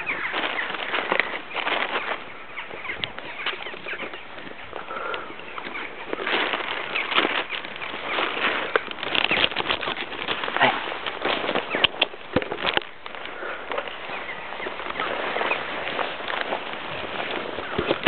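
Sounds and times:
cattle walking through grass: 0.0s - 18.0s
rustling: 0.0s - 18.0s.

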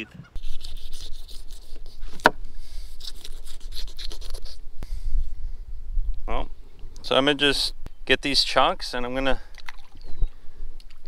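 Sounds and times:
knife sawing through fish: 0.4s - 2.2s, 2.8s - 4.6s.

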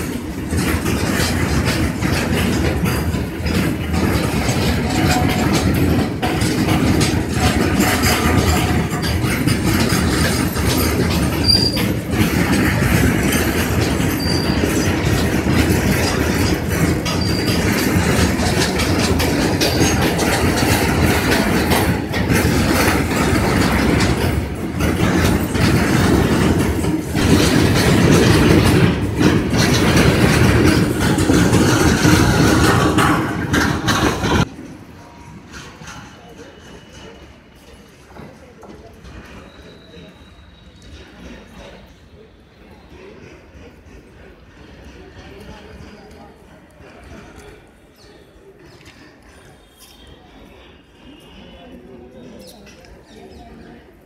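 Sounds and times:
wagon bogies clacking over track: 0.0s - 37.6s
train wheels rumbling on rails: 0.0s - 54.0s.

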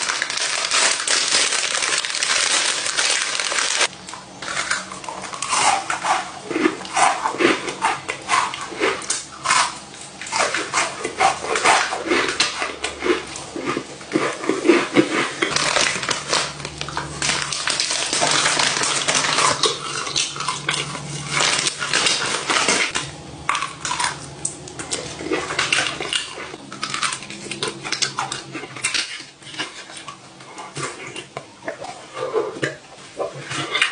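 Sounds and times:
plastic bag crinkling: 0.0s - 5.8s, 14.6s - 23.0s
cookie crunching: 0.0s - 33.9s.

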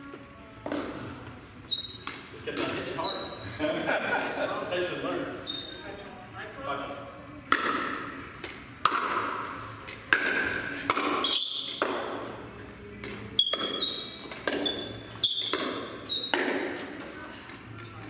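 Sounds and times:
shoes squeaking on floor: 0.1s - 3.6s, 5.3s - 6.0s, 10.5s - 11.8s, 13.3s - 16.8s
plastic ball popping off paddles: 7.5s - 12.2s, 13.0s - 16.7s
ball bouncing on hard floor: 10.1s - 12.2s, 13.0s - 16.7s.

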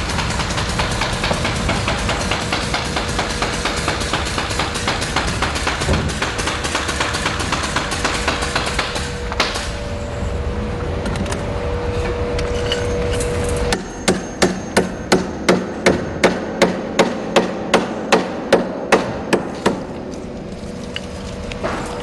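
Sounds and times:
hammer striking wire on wood: 0.0s - 9.8s, 13.7s - 20.0s
steady hum: 0.0s - 22.0s.

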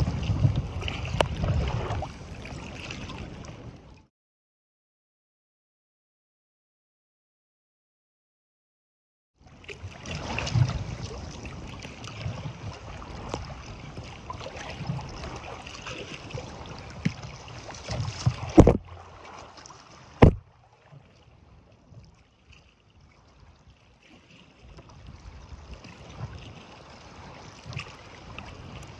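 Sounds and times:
water slapping against kayak hull: 0.0s - 3.8s, 9.5s - 28.9s
loud thumps: 18.6s - 18.8s, 20.2s - 20.4s.

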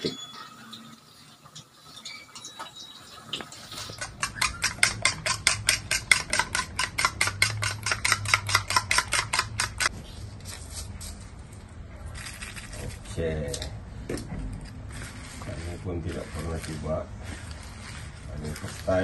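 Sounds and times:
utensil clicking against plastic bowl: 4.0s - 9.9s.

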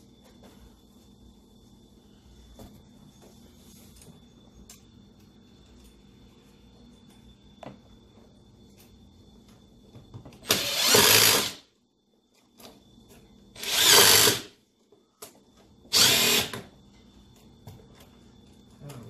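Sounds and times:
power drill bursts: 10.4s - 11.6s, 13.6s - 14.5s, 15.9s - 16.6s.

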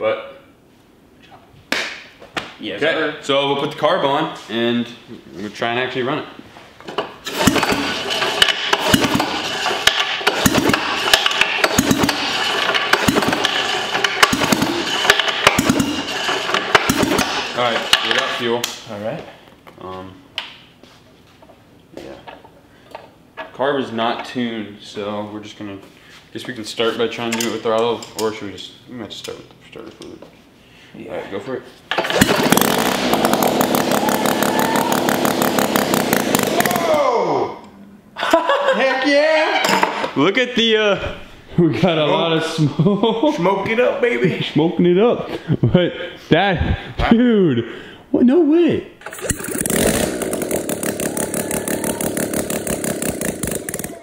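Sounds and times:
engine pull starter cranking: 7.2s - 18.4s, 31.9s - 37.0s, 49.0s - 54.0s
rotary engine running with crackle: 49.2s - 54.0s.

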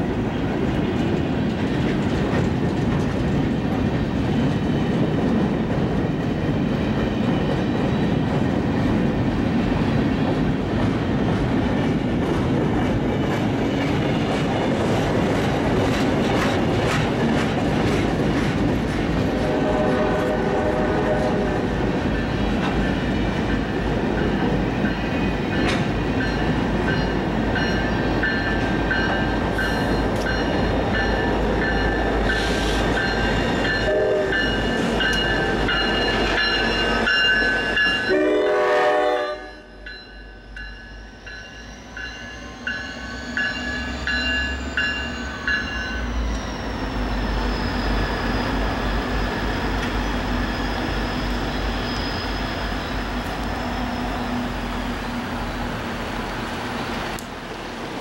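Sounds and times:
train rumbling and clattering: 0.0s - 58.0s
train horn blast: 19.2s - 21.8s, 33.8s - 34.6s, 38.0s - 39.8s
crossing bell ringing: 23.6s - 48.4s.

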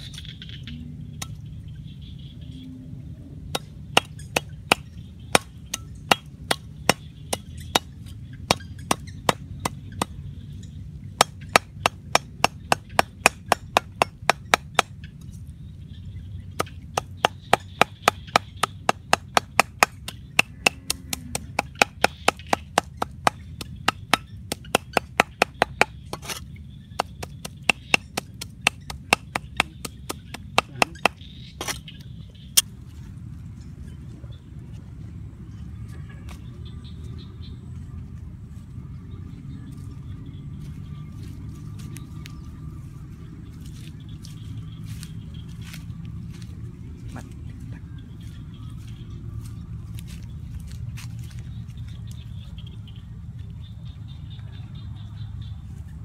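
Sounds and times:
meat cleaver chopping on wood: 16.6s - 26.3s, 27.0s - 31.2s.

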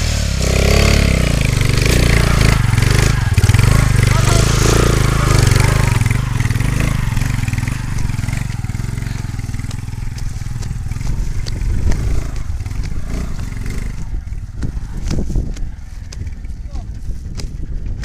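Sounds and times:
motorcycle engine running slowly: 0.0s - 18.0s
stones clicking under tyres: 5.2s - 18.0s.

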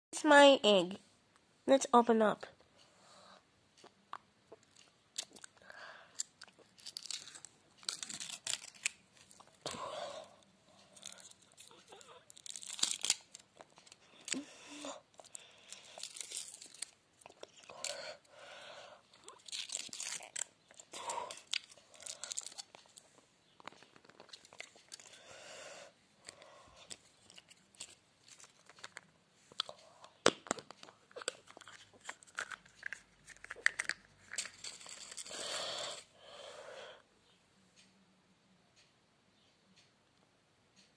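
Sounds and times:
chocolate shell crunching: 4.5s - 14.5s, 15.1s - 25.2s, 26.2s - 36.1s
foil wrapper crinkling: 6.2s - 9.5s, 11.0s - 14.0s, 15.7s - 18.0s, 19.3s - 22.9s.

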